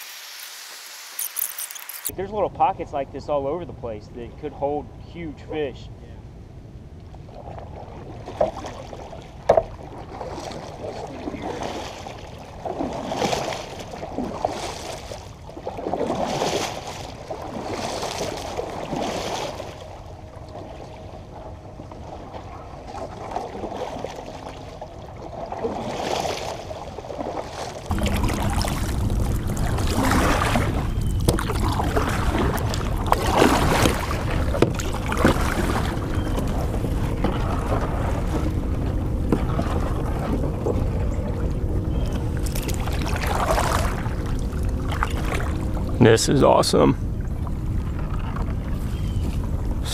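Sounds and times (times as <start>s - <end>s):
paddle splashing through water: 7.2s - 46.6s, 47.2s - 49.9s
wind rumble on microphone: 26.6s - 46.0s, 46.8s - 49.9s.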